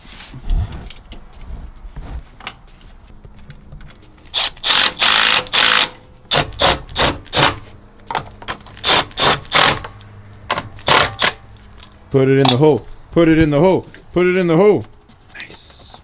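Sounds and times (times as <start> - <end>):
cordless electric ratchet running: 4.3 - 7.5.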